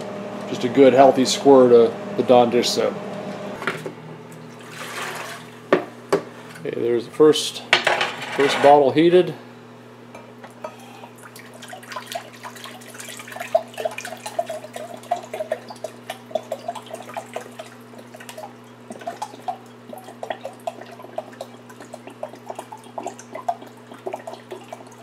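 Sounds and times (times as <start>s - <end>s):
steady low hum: 0.0s - 4.9s
liquid gurgling and splashing: 4.5s - 5.6s, 11.1s - 25.0s.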